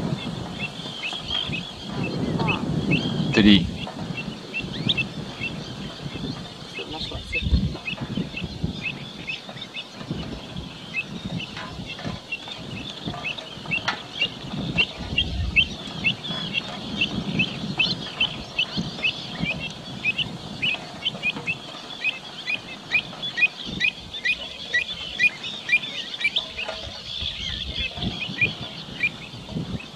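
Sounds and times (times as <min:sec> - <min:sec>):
plovers chirping: 0:00.0 - 0:29.9
wind rumble on microphone: 0:00.0 - 0:29.9.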